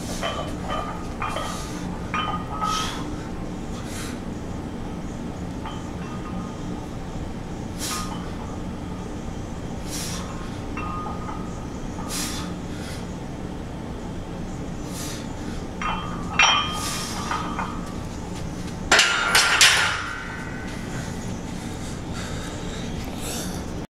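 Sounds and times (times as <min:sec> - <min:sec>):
barbell clanking on metal hooks: 0:00.2 - 0:03.0, 0:05.6 - 0:06.6, 0:10.0 - 0:11.5, 0:15.8 - 0:18.0, 0:18.9 - 0:20.9
short hissing breaths: 0:02.6 - 0:04.3, 0:07.7 - 0:08.4, 0:09.8 - 0:10.7, 0:12.0 - 0:13.2, 0:14.8 - 0:15.7, 0:16.8 - 0:17.5.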